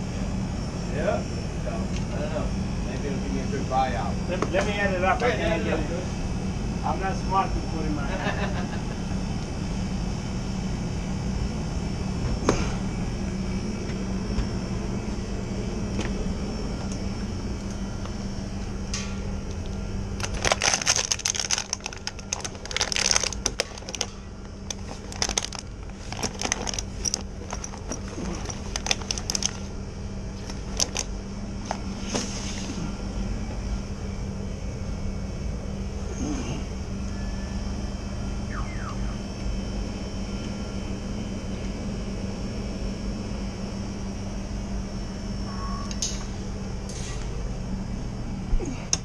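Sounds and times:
refrigeration unit humming: 0.0 - 49.0
hoses and tools rustling and clattering: 18.9 - 32.9.

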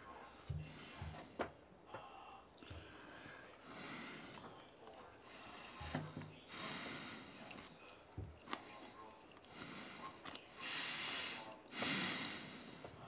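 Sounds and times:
man breathing heavily: 0.4 - 4.5, 5.2 - 7.4, 9.5 - 13.0.

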